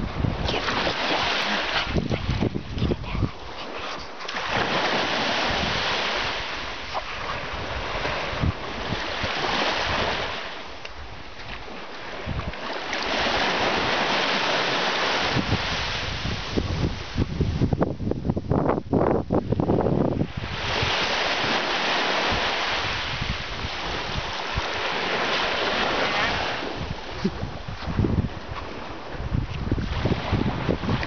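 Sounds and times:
small waves breaking on shore: 0:00.0 - 0:17.8, 0:19.5 - 0:31.0
wind buffeting microphone: 0:00.0 - 0:31.0.

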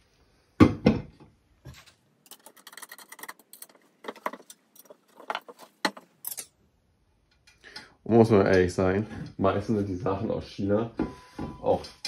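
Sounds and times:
metal hardware clinking: 0:02.2 - 0:06.6.

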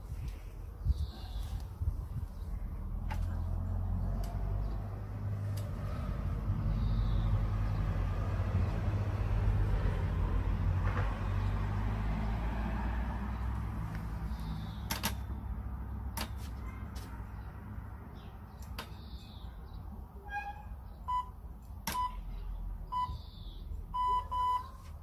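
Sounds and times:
vehicle engine rumble: 0:00.0 - 0:25.0
sharp clicks: 0:14.8 - 0:15.3.

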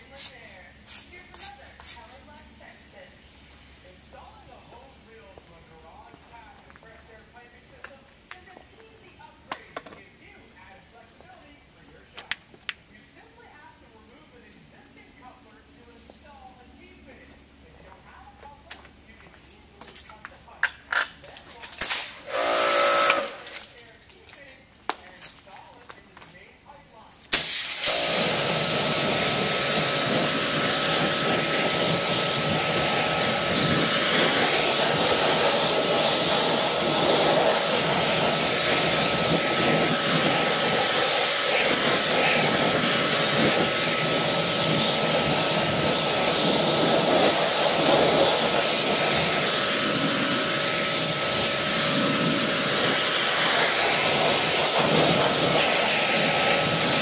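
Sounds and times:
faint steady whine: 0:00.0 - 0:57.0
pressure washer spraying water: 0:21.8 - 0:23.7, 0:27.3 - 0:57.0.

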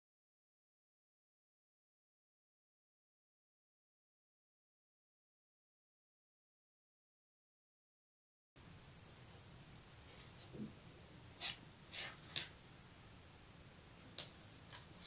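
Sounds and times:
faint hiss: 0:08.6 - 0:15.0.

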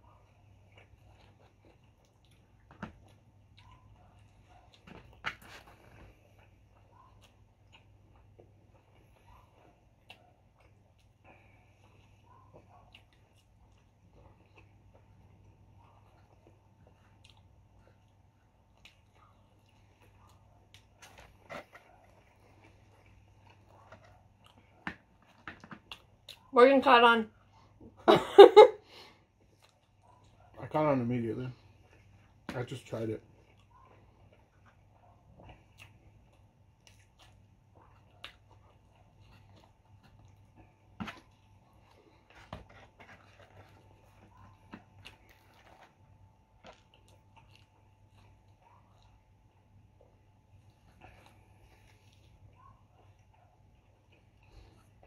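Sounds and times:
faint chewing of pizza: 0:00.0 - 0:28.1, 0:28.8 - 0:55.0
low steady hum: 0:00.0 - 0:55.0.

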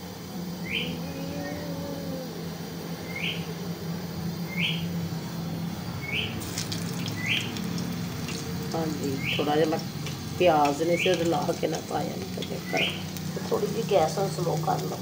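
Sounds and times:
steady low hum: 0:00.0 - 0:15.0
bird chirping: 0:00.6 - 0:01.8, 0:03.0 - 0:03.6, 0:04.4 - 0:10.2, 0:12.4 - 0:13.2.

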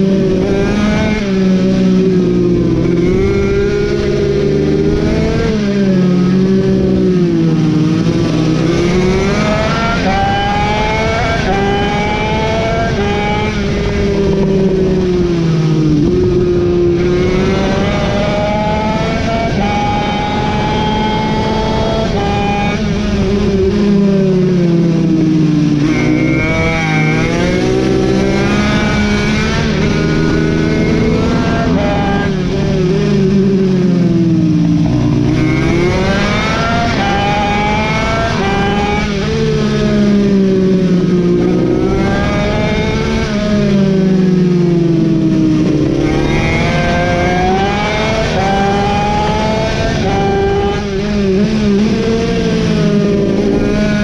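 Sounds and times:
mini bike engine revving: 0:25.8 - 0:34.0, 0:34.9 - 0:54.0.

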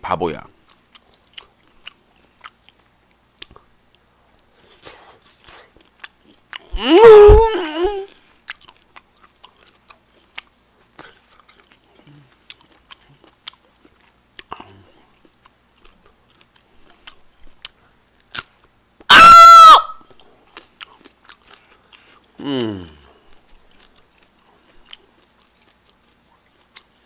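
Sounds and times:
wet chewing mouth clicks: 0:00.6 - 0:03.7, 0:05.2 - 0:06.9, 0:08.4 - 0:18.5, 0:20.2 - 0:27.0
high-pitched vocal squeal: 0:06.8 - 0:08.1, 0:19.1 - 0:20.0.

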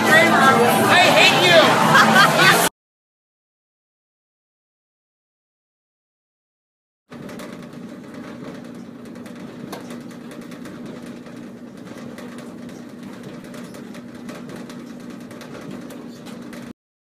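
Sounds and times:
clothes dryer running: 0:00.0 - 0:02.7, 0:07.1 - 0:16.8.

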